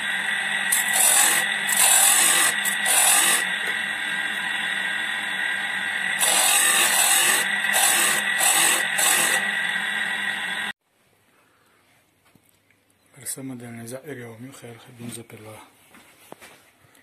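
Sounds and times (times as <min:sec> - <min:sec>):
grinder motor humming and whining: 0:00.0 - 0:10.8
loud scraping hisses: 0:00.0 - 0:10.8.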